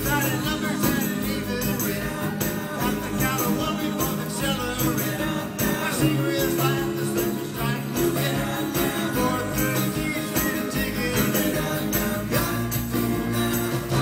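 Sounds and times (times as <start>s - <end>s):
lead and backing vocals: 0.0s - 14.0s
live rock band playing: 0.0s - 14.0s.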